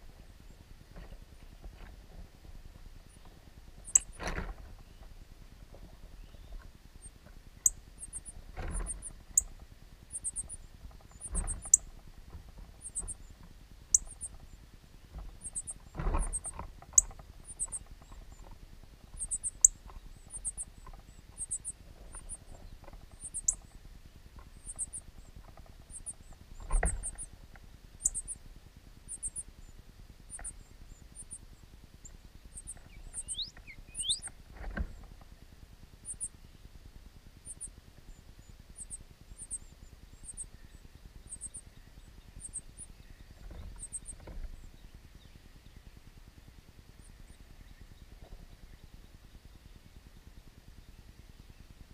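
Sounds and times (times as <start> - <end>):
nestlings chirping: 3.0 - 5.0, 6.1 - 12.0, 12.7 - 14.6, 15.3 - 23.8, 24.4 - 27.3, 27.9 - 28.5, 29.1 - 29.7, 30.3 - 35.1, 36.0 - 36.4, 37.4 - 44.9.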